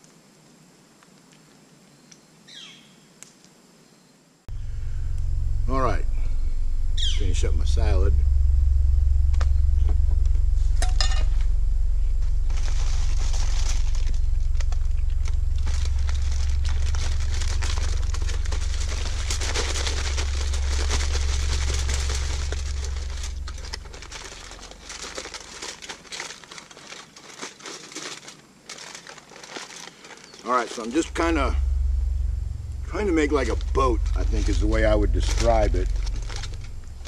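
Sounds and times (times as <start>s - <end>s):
low rumble: 4.5s - 26.0s, 30.7s - 37.0s
aluminum foil crinkling: 12.4s - 31.1s.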